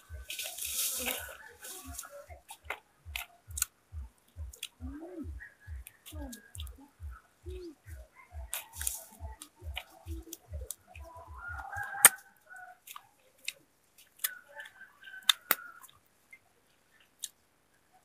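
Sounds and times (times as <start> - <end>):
chickens clucking: 0.0 - 17.2
sharp clicks: 2.3 - 5.0.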